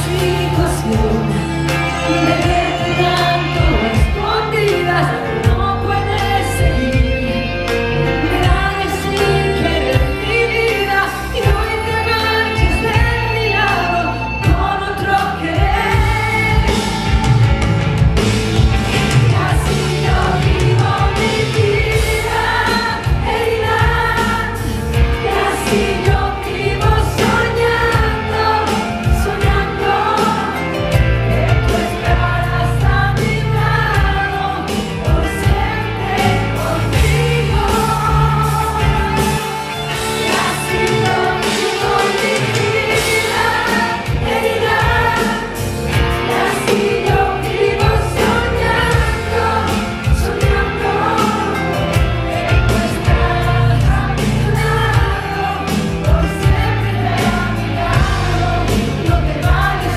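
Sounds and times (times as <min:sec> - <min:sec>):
woman singing: 0:00.0 - 0:17.2, 0:19.2 - 0:45.6
live pop band: 0:00.0 - 0:59.9.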